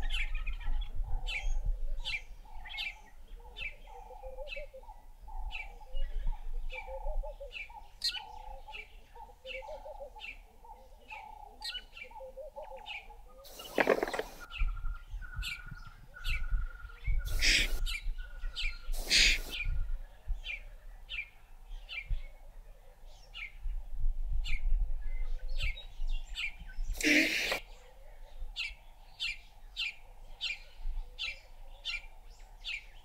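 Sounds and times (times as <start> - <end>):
birds chirping: 0.0 - 23.8, 24.4 - 33.0.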